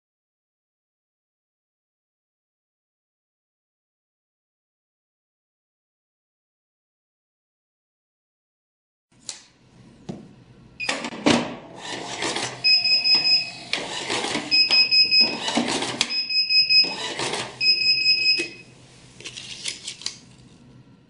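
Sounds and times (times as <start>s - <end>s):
receipt printer printing: 10.8s - 18.8s
high electronic beep: 12.6s - 13.6s, 14.5s - 15.4s, 16.1s - 17.0s, 17.6s - 18.7s.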